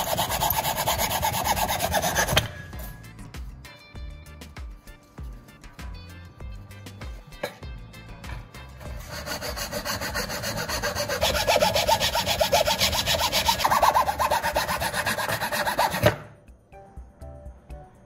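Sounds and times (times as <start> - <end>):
drill bit rasping on abrasive: 0.0 - 2.5, 8.9 - 16.1
faint background music: 0.0 - 18.0.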